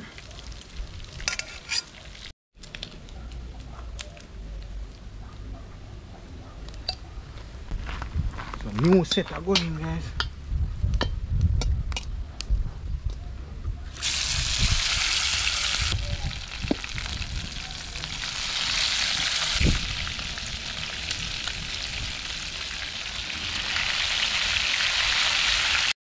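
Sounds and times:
chicken sizzling in frying pan: 14.0 - 25.9.

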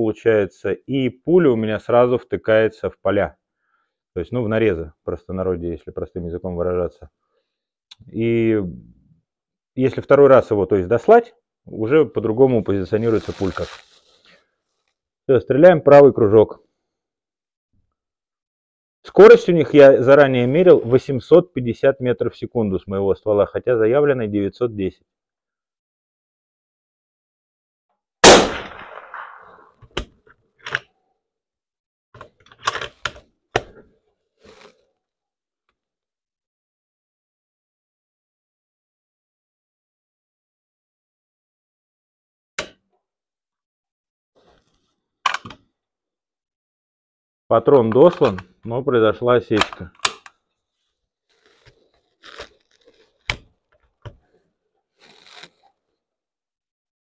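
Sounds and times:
soft scraping and rustling: 12.7 - 15.0, 54.2 - 55.8
rifle shot echoing: 28.2 - 29.7
rifle bolt metallic clicks: 49.6 - 50.3.

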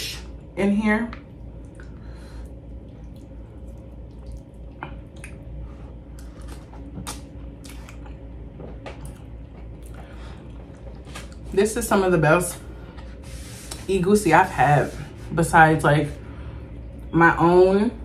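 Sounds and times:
low hum: 0.0 - 18.0
person chewing: 2.8 - 11.4.

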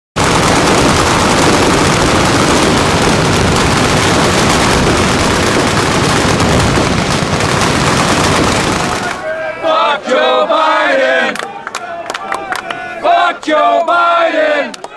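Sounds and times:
explosions: 0.2 - 9.2
machine-gun fire: 0.2 - 9.2.

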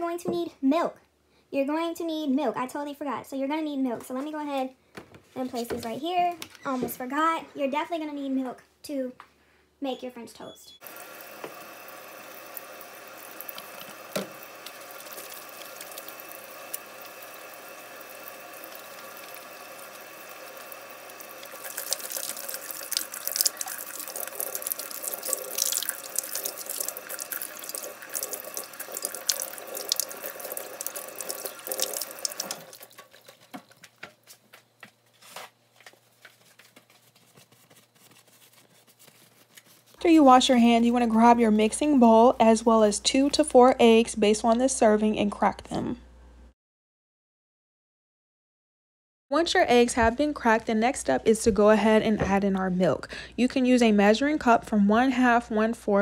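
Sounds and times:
faucet running into metal sink: 10.8 - 33.3
hands washing under water: 10.8 - 34.1.

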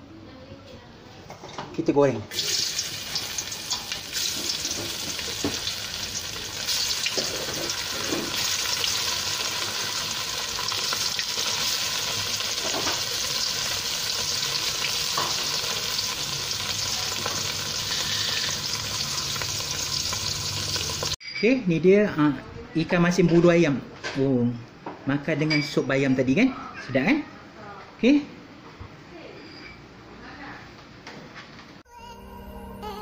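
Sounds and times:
fish sizzling in hot oil: 2.3 - 21.2.

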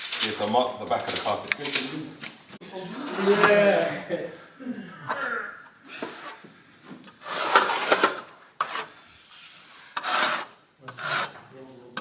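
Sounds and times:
hand trowel scraping adhesive: 7.1 - 12.0.

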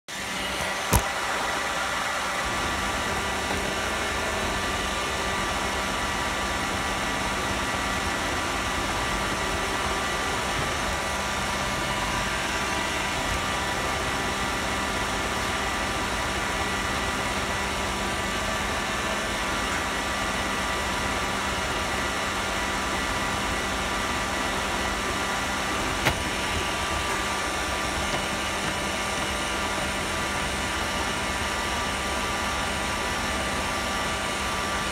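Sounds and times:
robot vacuum whirring: 23.2 - 31.2.

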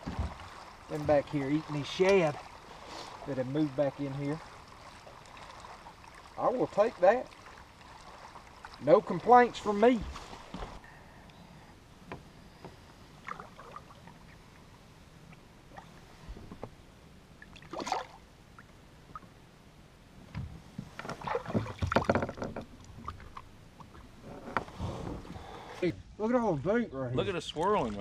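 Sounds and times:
water splashing: 0.0 - 10.8, 13.2 - 16.1, 17.4 - 19.3, 21.0 - 24.3, 27.2 - 28.0.

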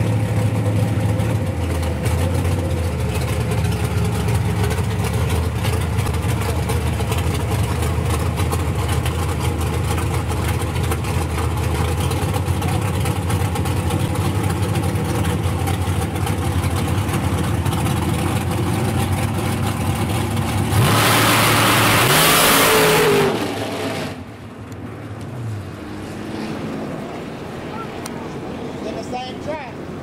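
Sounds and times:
drag car engine idling roughly: 0.0 - 21.8
engine full throttle blast: 0.0 - 24.5.

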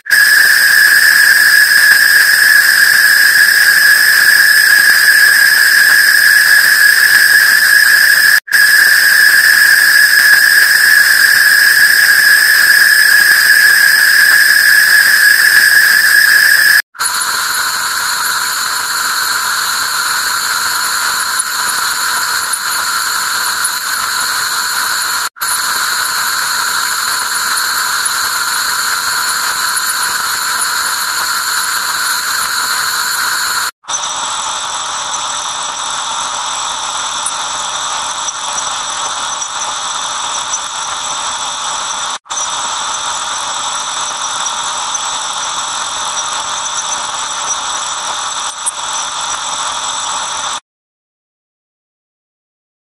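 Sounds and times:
shrill ringing tones: 0.0 - 34.1
harsh electronic noise drone: 0.0 - 50.6.

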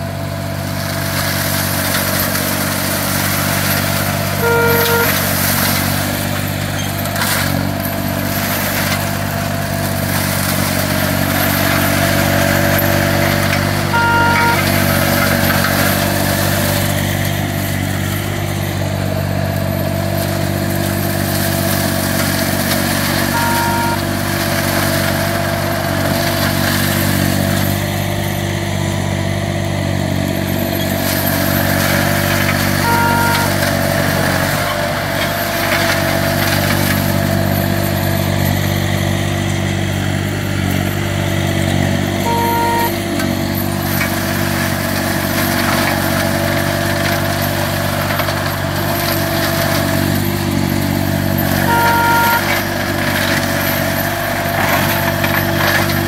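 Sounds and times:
mower engine running: 0.0 - 56.0
two-tone beep: 4.4 - 5.4, 13.9 - 14.9, 23.3 - 24.2, 32.8 - 33.8, 42.2 - 43.1, 51.7 - 52.6.

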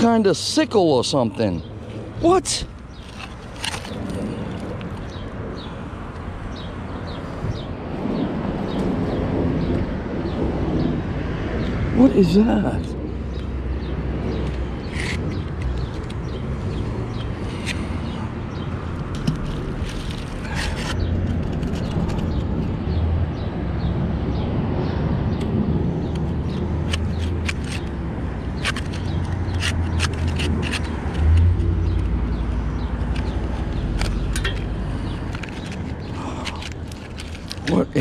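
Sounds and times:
steady low rumble: 1.6 - 29.9
small clicks and scrapes: 2.8 - 5.2, 14.4 - 17.9, 19.0 - 22.7, 26.1 - 37.7.

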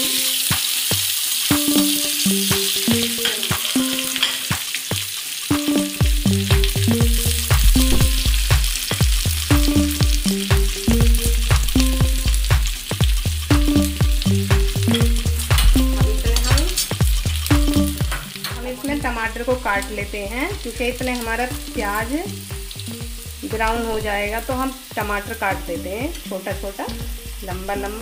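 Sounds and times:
background music melody: 0.0 - 28.0
onions sizzling in oil: 0.0 - 28.0
steel spoon scraping pan: 3.0 - 4.5
bass line: 5.7 - 26.2, 26.9 - 28.0.

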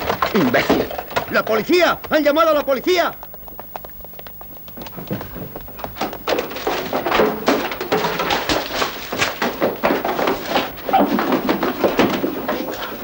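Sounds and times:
books and shelving crashing down: 5.2 - 13.0.

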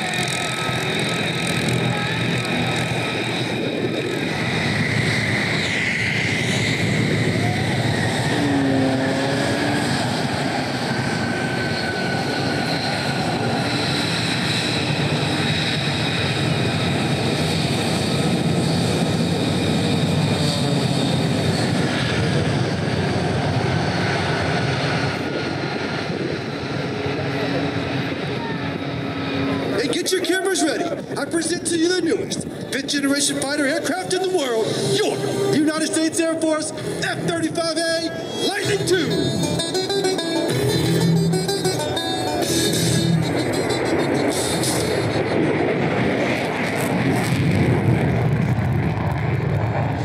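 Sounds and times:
jet engine whine and rumble: 0.0 - 50.0
high tone falling in pitch: 38.1 - 45.1.

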